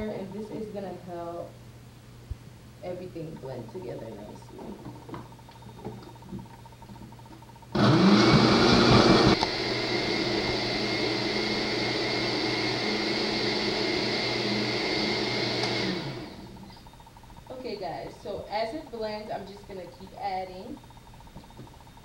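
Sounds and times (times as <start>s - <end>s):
blender chopping vegetables: 7.8s - 16.6s.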